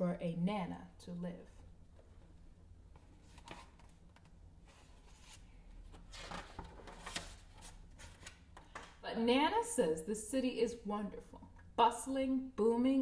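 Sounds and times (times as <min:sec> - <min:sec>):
book page rustling: 0:02.9 - 0:09.0.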